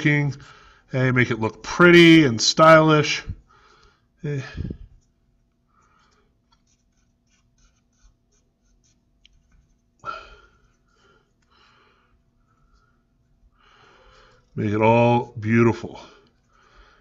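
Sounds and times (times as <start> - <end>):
pen scratching on paper: 5.0 - 9.9.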